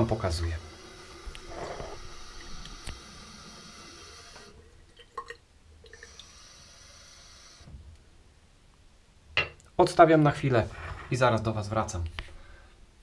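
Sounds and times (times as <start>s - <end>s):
tap water running into a bowl: 0.0s - 6.9s.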